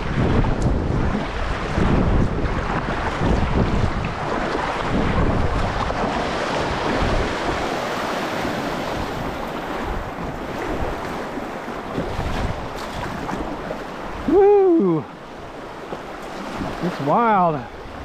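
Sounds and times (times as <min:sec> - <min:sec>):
river current rushing and splashing: 0:00.0 - 0:18.0
wind buffeting microphone: 0:00.0 - 0:18.0.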